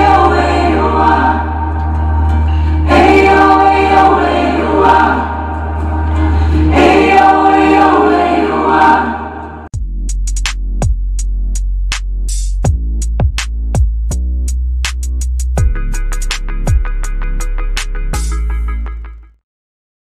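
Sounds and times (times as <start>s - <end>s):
choir-style singing over heavy bass: 0.0s - 9.7s
electronic drum beat: 9.7s - 18.7s.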